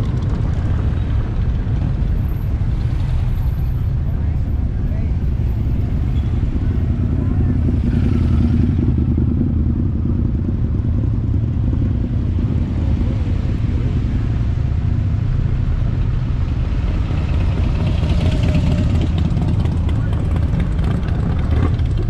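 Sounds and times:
traffic engines rumbling: 0:00.0 - 0:22.0
motorcycle engine passing close: 0:06.6 - 0:10.5, 0:16.9 - 0:22.0.

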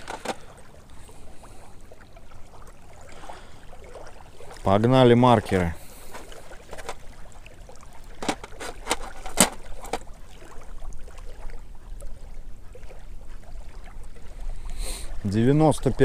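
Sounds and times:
fishing gear clicks: 0:00.0 - 0:00.5, 0:08.2 - 0:10.0
small waves lapping: 0:00.0 - 0:16.0.

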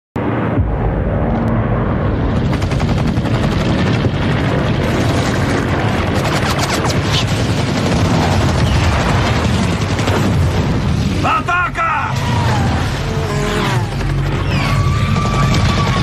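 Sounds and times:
warplane engines droning: 0:00.2 - 0:16.0
rapid machine-gun fire: 0:02.3 - 0:11.2, 0:12.1 - 0:16.0
explosion blasts: 0:07.2 - 0:16.0
falling whines: 0:12.1 - 0:16.0.

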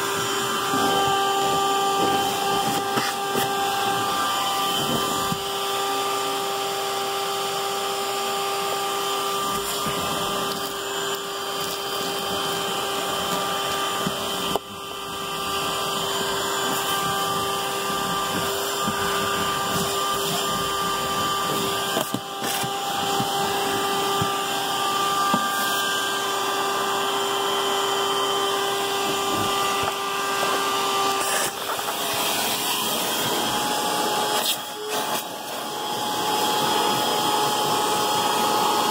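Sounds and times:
nozzle sucking on carpet: 0:00.0 - 0:05.4, 0:09.5 - 0:26.8, 0:29.0 - 0:37.2
vacuum cleaner running: 0:00.0 - 0:38.9.

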